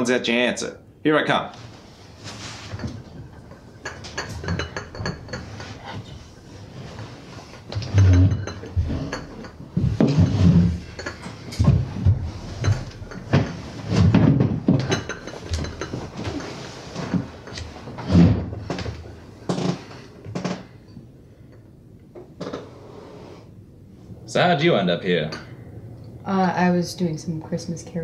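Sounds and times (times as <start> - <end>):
objects knocking and clattering: 2.2 - 22.7.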